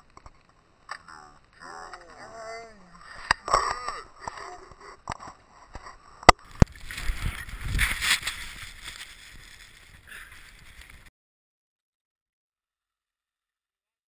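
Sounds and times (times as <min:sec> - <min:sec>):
wind and snow scraping camera: 0:01.5 - 0:11.1.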